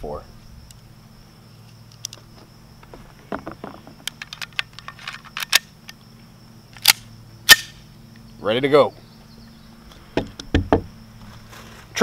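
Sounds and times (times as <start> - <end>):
cartridges clicking into magazine: 4.1 - 6.0, 6.8 - 7.8
sharp metallic click of pistol: 5.4 - 6.0, 6.8 - 7.8.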